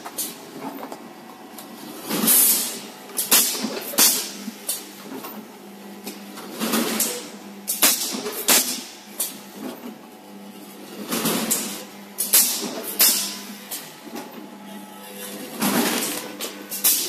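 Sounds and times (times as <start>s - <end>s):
machine low hum: 8.8s - 17.0s.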